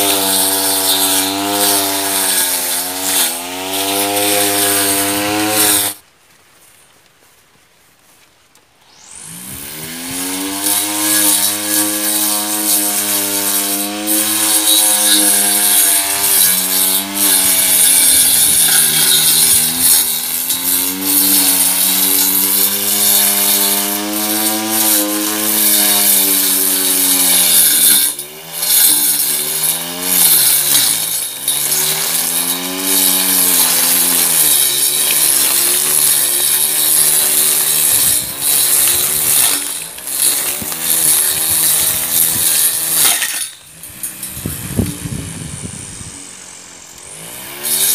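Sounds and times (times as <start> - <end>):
brush cutter blade whining: 0.0 - 6.0, 8.8 - 47.9
high hiss: 8.7 - 10.0, 44.2 - 47.2.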